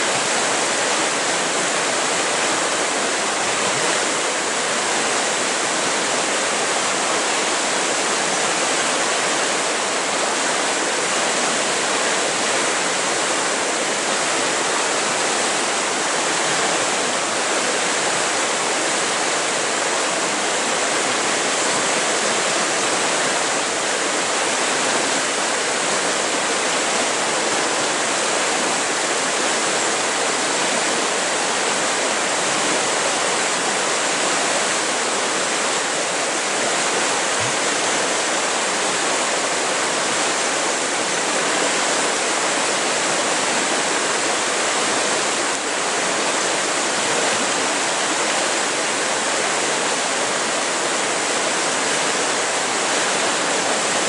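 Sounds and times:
river rushing over rocks: 0.0s - 54.0s.

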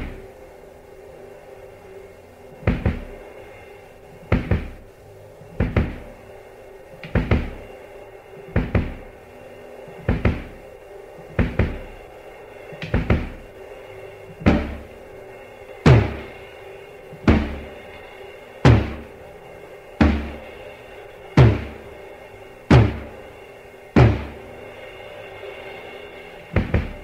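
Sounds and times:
heavy drum hits: 14.4s - 15.0s, 15.8s - 16.4s, 17.2s - 17.8s, 18.6s - 19.2s, 20.0s - 20.6s, 21.2s - 22.1s, 22.7s - 23.3s, 24.0s - 24.6s, 26.6s - 27.0s.

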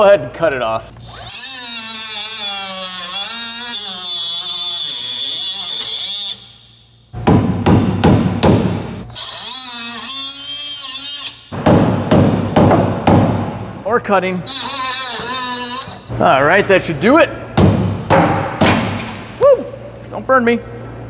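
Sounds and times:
power cutting tool grinding metal: 1.0s - 6.4s, 14.5s - 16.0s.

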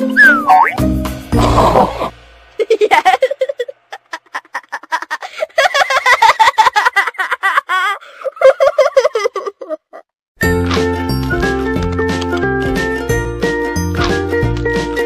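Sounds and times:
high-pitched cartoon giggling: 2.6s - 10.1s.

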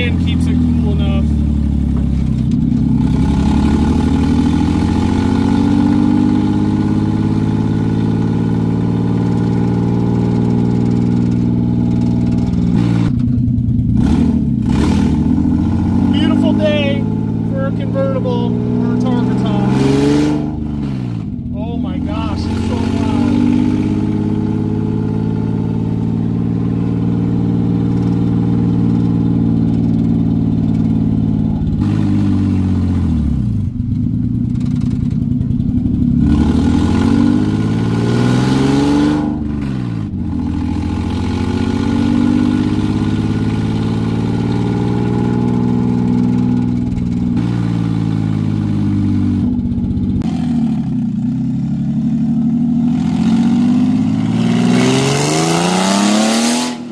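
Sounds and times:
car engine revving: 0.0s - 56.9s.

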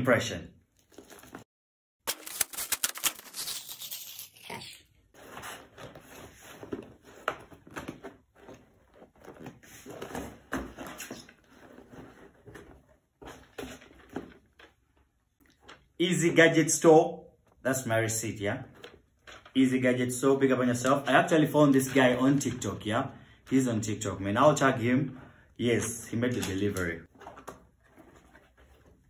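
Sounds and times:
packaging rustling and tearing: 2.1s - 10.2s.

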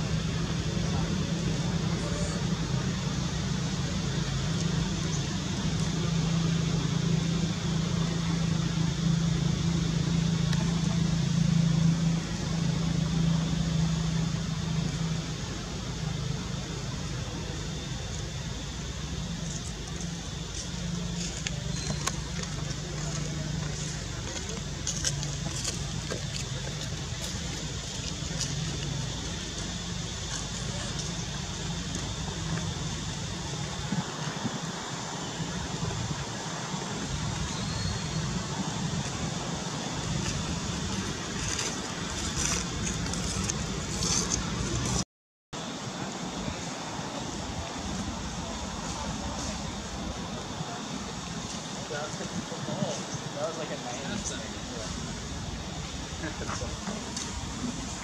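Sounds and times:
low motor hum: 0.0s - 45.0s
steady hiss: 0.0s - 45.0s, 45.6s - 58.0s.

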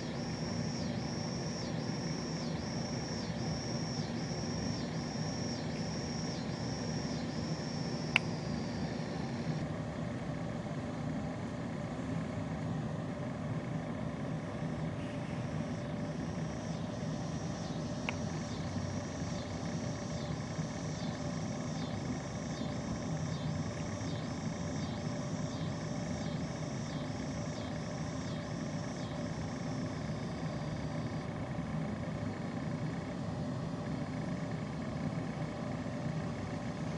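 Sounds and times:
sharp click: 8.1s - 8.4s.

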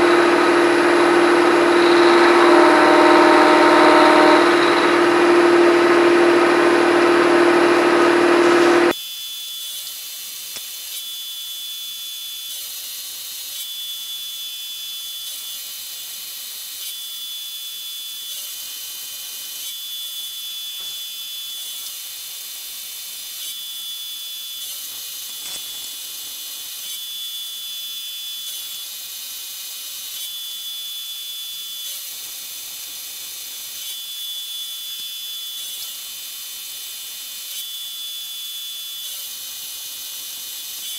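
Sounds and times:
high machine whine: 0.0s - 9.0s, 23.6s - 28.1s
milling machine cutting metal: 0.0s - 40.9s.

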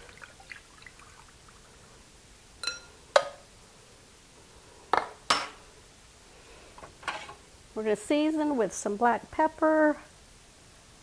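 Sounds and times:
metal clinking on glass bowl: 2.6s - 2.9s.

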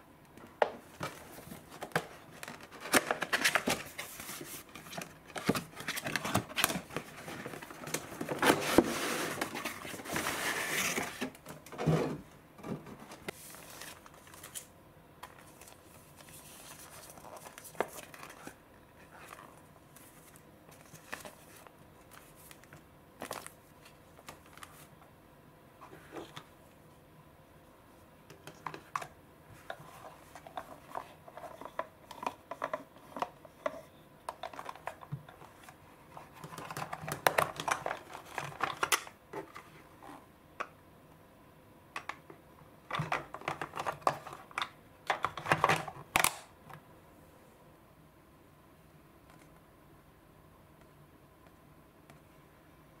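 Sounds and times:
packaging rustling and crinkling: 0.9s - 11.6s, 13.1s - 24.9s, 34.4s - 39.6s.

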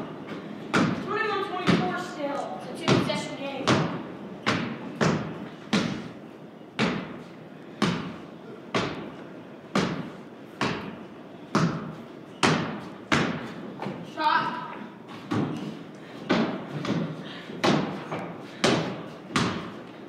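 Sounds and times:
basketball bouncing on wooden floor: 19.4s - 19.8s.

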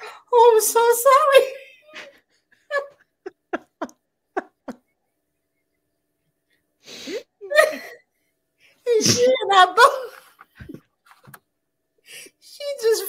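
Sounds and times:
women stifling laughter: 1.9s - 5.0s.

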